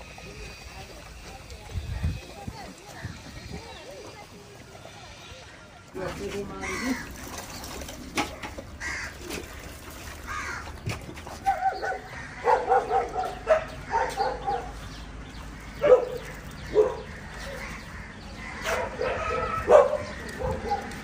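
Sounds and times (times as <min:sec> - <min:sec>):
dog barking: 0:11.4 - 0:14.8, 0:15.8 - 0:17.6, 0:18.6 - 0:21.0.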